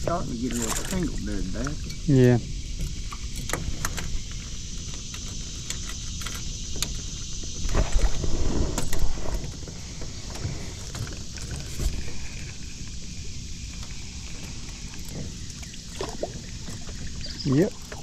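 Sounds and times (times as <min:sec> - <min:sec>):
steady low rumble: 0:00.0 - 0:05.8, 0:06.6 - 0:18.0.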